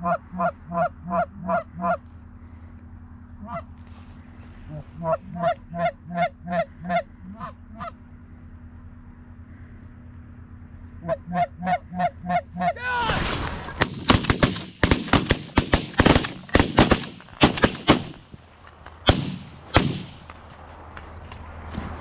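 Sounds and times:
goose honks: 0.0 - 2.6, 3.4 - 8.1, 10.9 - 13.2
shotgun blasts: 13.0 - 18.2, 19.0 - 20.5.

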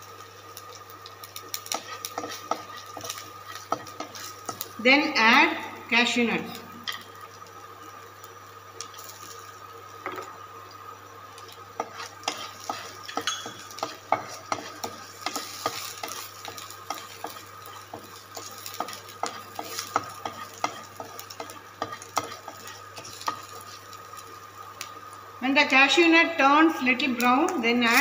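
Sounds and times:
sizzle of frying in oil: 0.0 - 28.0
spatula tapping and scraping pan: 1.6 - 4.7, 11.8 - 23.6.

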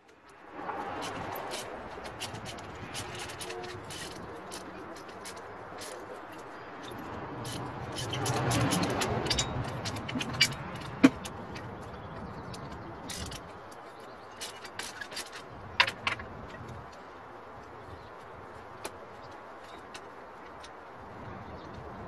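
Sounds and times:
wrench clicking on bolts: 1.0 - 11.7.

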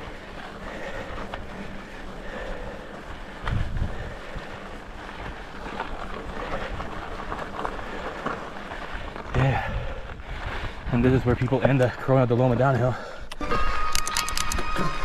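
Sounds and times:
bike rolling over rocky trail: 0.0 - 13.2
bike clicks and rattles: 0.0 - 15.0
wind on microphone: 3.4 - 4.2.

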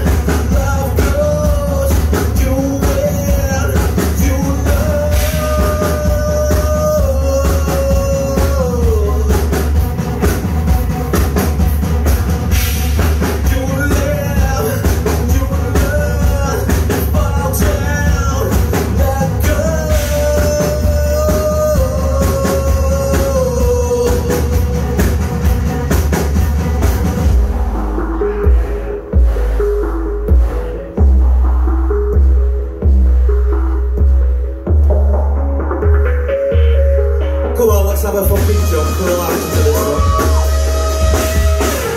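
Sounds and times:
man singing long notes: 0.0 - 9.8, 13.4 - 25.2, 37.6 - 41.9
bass guitar: 0.0 - 41.9
busy drum kit: 0.0 - 41.9.

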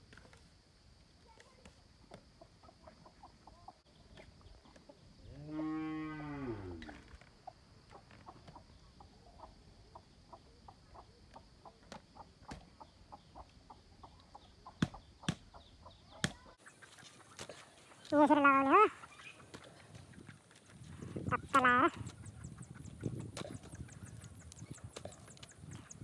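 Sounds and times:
cow mooing: 5.3 - 6.9
birds chirping: 6.2 - 26.0.

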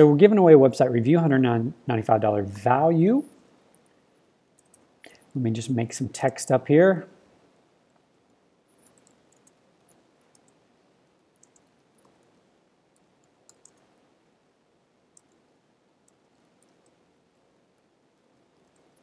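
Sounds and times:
computer keyboard typing: 8.8 - 10.6, 11.4 - 12.4, 13.0 - 14.0, 15.2 - 15.4, 16.0 - 17.0, 18.4 - 19.0.

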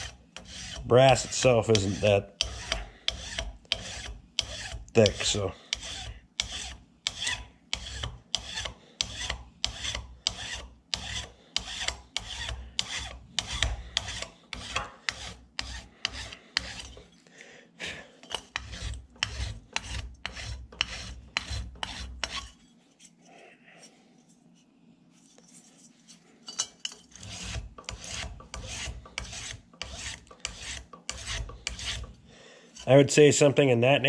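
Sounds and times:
file rasping on metal: 0.0 - 17.1, 18.2 - 22.6, 26.9 - 33.0.

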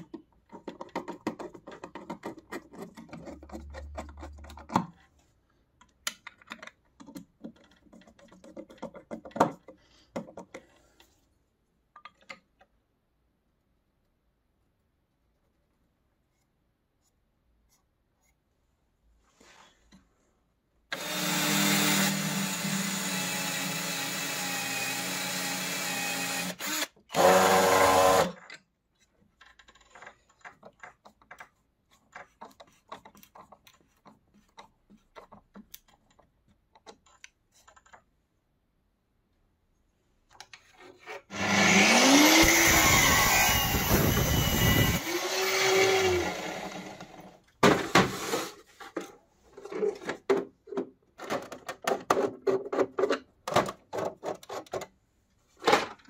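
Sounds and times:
power drill boring wood: 20.9 - 28.4, 41.3 - 47.3.

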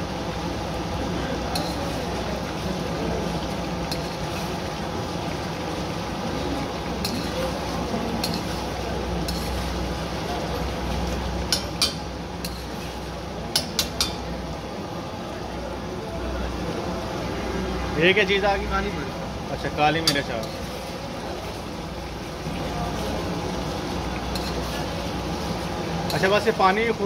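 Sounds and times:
gravy sizzling: 0.0 - 27.0
metal clinks on pan: 1.5 - 2.0, 7.0 - 7.4, 8.2 - 8.6, 9.2 - 9.6, 11.5 - 12.7, 13.5 - 14.3, 20.0 - 20.6, 24.3 - 24.8
metal spatula scraping pan: 9.2 - 9.8, 12.4 - 13.1, 24.3 - 24.8.

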